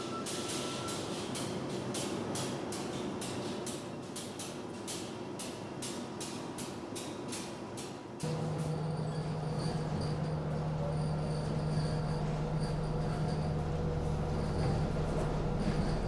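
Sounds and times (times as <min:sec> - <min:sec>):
subway train humming: 0:00.0 - 0:16.0
louder lower hum: 0:08.2 - 0:16.0.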